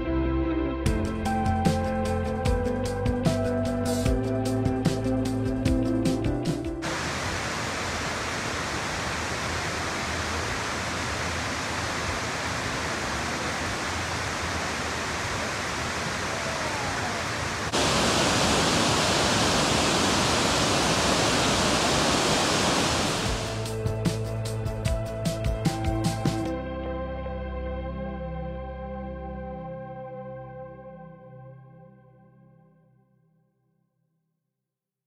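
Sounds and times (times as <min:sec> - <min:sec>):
music: 0:00.0 - 0:06.9, 0:23.4 - 0:34.4
waterfall rushing over rocks: 0:06.8 - 0:23.6.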